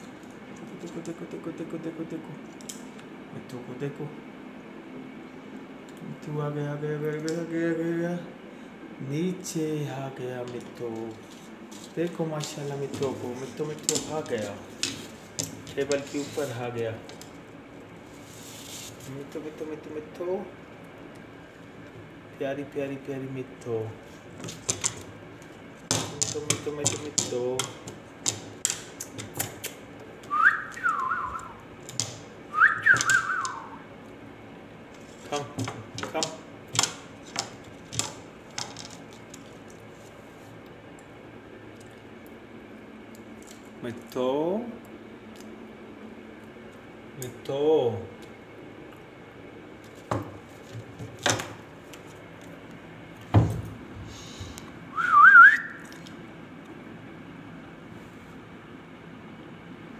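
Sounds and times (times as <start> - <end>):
whistled phrase with falling trill: 30.3 - 31.6, 32.5 - 33.8, 55.0 - 55.8.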